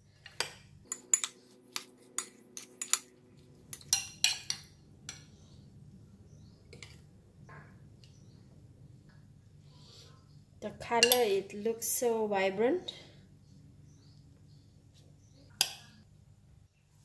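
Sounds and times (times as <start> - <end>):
metal spoon clinking on glass bowl: 11.0 - 11.3.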